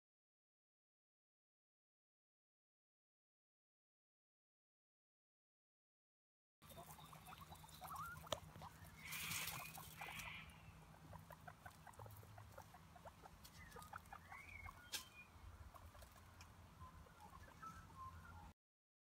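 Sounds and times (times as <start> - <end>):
guinea pig squeaks: 6.6 - 18.5
rustling in wood chips: 9.0 - 10.4.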